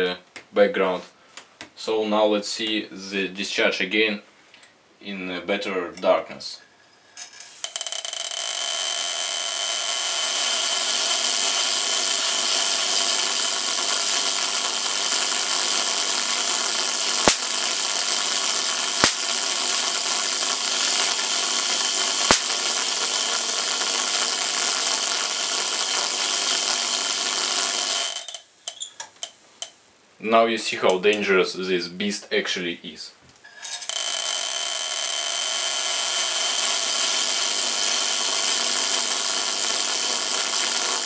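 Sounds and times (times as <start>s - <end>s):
spark breakdown clicks: 7.5s - 29.8s, 33.8s - 41.0s
hissing buzz of corona discharge: 7.6s - 29.8s, 33.9s - 41.0s.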